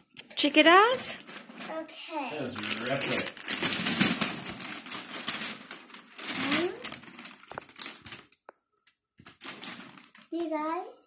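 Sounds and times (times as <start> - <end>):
wrapping paper tearing and rustling: 0.4 - 8.4, 9.2 - 10.6
child's voice: 1.6 - 2.6, 6.4 - 7.0, 10.3 - 11.0.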